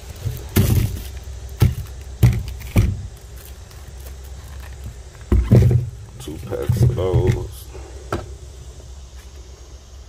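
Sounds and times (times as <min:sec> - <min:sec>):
packages rustling: 0:00.0 - 0:07.6
packs knocking when set down: 0:00.2 - 0:03.2, 0:04.7 - 0:08.3.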